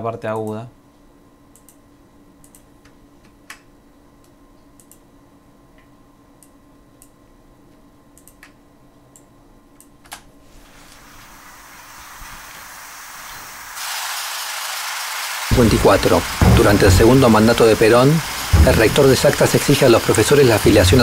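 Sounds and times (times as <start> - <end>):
high filtered hiss: 10.6 - 13.8, 15.5 - 21.0.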